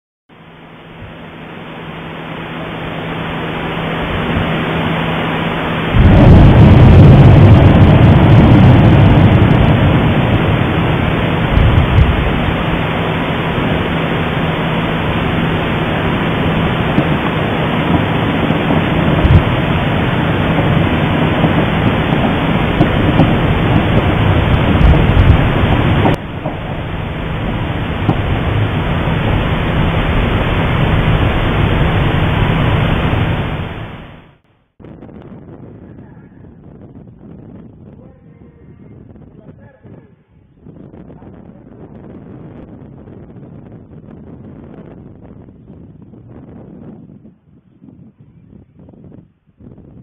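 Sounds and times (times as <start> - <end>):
steady microphone hiss and hum: 0.3 - 50.0
volcanic explosion boom and rumble: 2.8 - 50.0
fragments ticking on slopes: 16.8 - 26.8.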